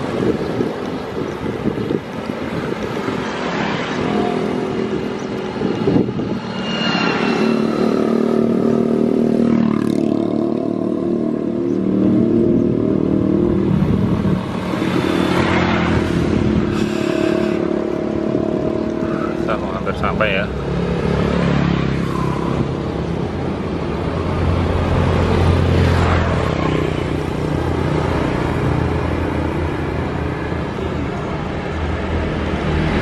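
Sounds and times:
small motorcycle engines passing: 0:00.0 - 0:31.6.

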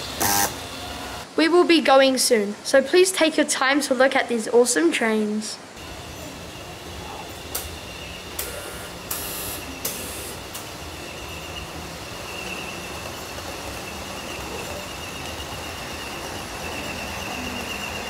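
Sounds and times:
high whine: 0:05.8 - 0:18.0
model trains humming: 0:05.8 - 0:18.0.

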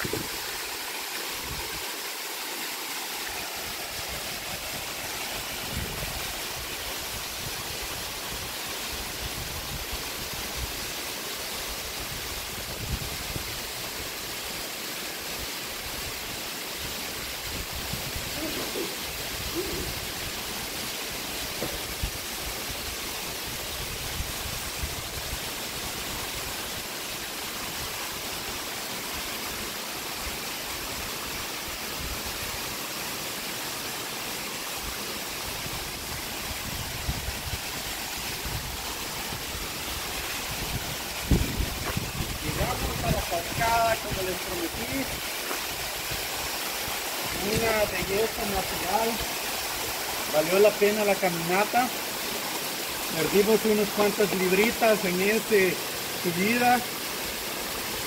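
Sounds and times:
waterfall rushing: 0:00.0 - 0:58.0
low thumps on microphone: 0:21.6 - 0:21.8, 0:41.3 - 0:42.3.

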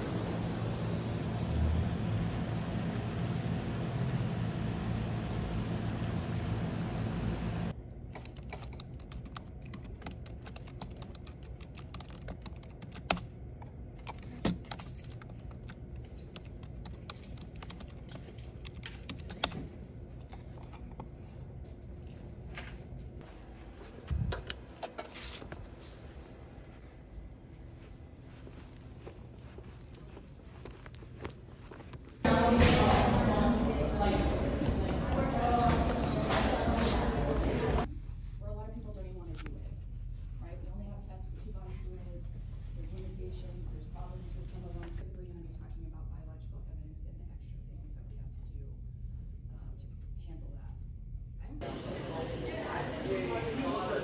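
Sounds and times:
outdoor rumbling noise: 0:00.0 - 0:07.8, 0:22.9 - 0:38.6
computer keyboard typing: 0:08.2 - 0:13.3, 0:14.0 - 0:19.6.

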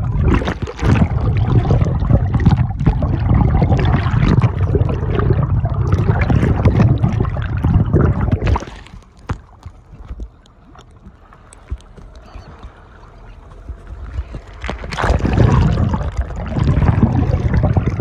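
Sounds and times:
small splashes: 0:00.0 - 0:05.3, 0:05.9 - 0:11.8
water rushing underwater: 0:00.0 - 0:09.4, 0:14.0 - 0:18.0
sea water lapping: 0:00.0 - 0:18.0.

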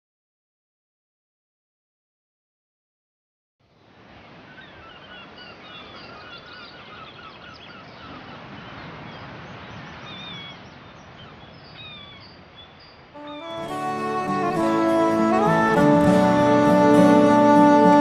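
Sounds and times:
birds chirping: 0:04.2 - 0:18.0.

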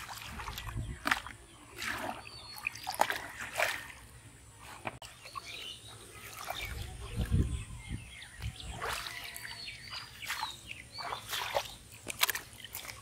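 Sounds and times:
water splashing and trickling: 0:00.0 - 0:13.0.

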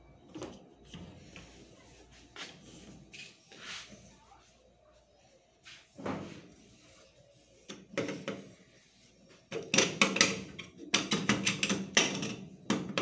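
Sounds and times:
hard objects knocking and clattering: 0:07.7 - 0:08.6, 0:09.5 - 0:13.0.

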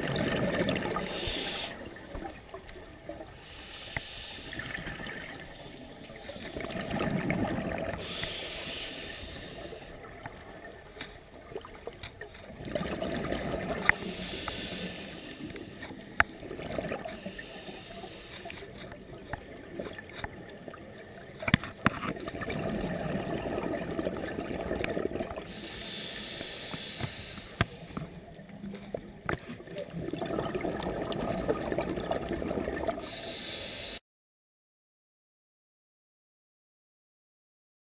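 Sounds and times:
diver breathing through regulator: 0:00.2 - 0:07.1, 0:07.7 - 0:10.0, 0:13.8 - 0:16.2, 0:16.9 - 0:19.0, 0:25.4 - 0:28.3, 0:32.8 - 0:34.0.

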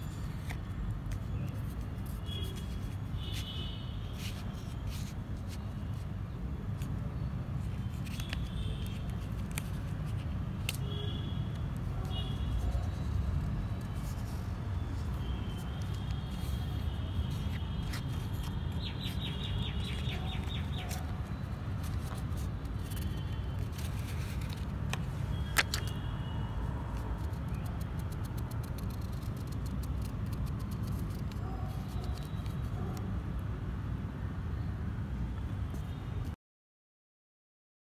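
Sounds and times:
paper label rustling on bottle: 0:00.2 - 0:06.0, 0:07.6 - 0:26.1, 0:26.9 - 0:32.7
birds chirping: 0:18.3 - 0:21.6.

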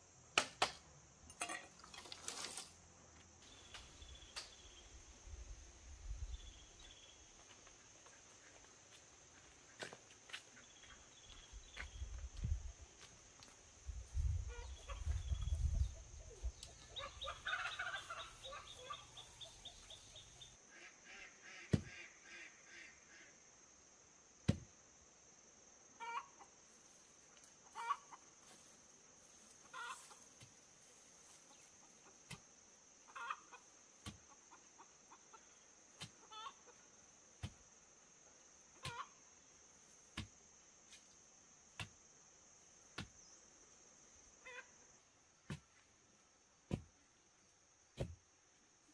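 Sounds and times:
crickets droning: 0:00.0 - 0:48.9
chickens clucking: 0:14.5 - 0:22.4, 0:27.6 - 0:28.3, 0:29.6 - 0:30.3, 0:33.1 - 0:36.8, 0:38.8 - 0:39.2.

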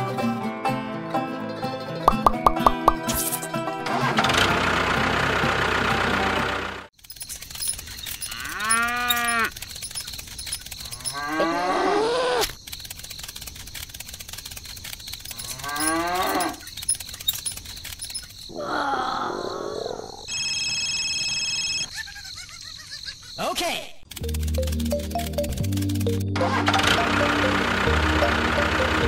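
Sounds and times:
music: 0:00.0 - 0:04.3, 0:24.2 - 0:29.0
cow mooing: 0:08.3 - 0:09.5, 0:11.0 - 0:12.4, 0:15.4 - 0:16.6.

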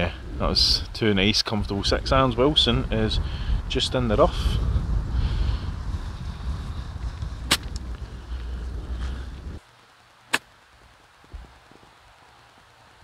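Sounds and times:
wind buffeting microphone: 0:00.0 - 0:09.6.

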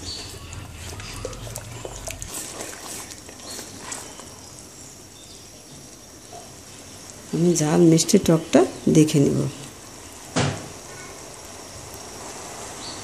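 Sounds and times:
low hum: 0:00.0 - 0:02.3.

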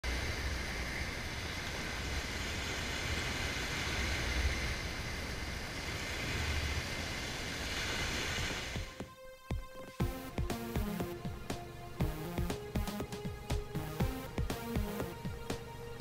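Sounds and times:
small waves breaking on sand: 0:01.2 - 0:09.0.

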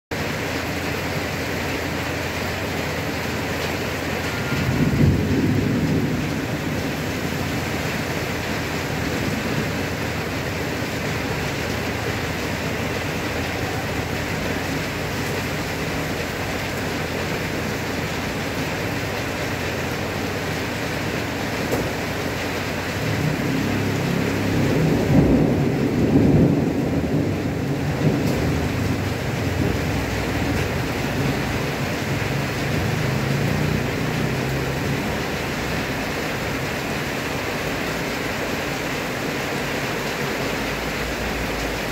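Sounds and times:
heavy rain pouring: 0:00.1 - 0:41.9
low thunder rumbles: 0:04.2 - 0:22.2, 0:22.8 - 0:36.1.

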